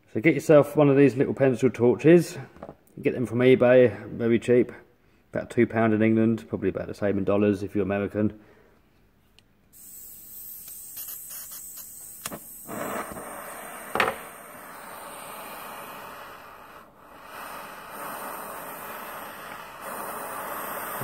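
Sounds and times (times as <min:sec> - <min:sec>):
pencil torch hissing: 0:09.7 - 0:21.0
sharp pop: 0:13.9 - 0:14.4.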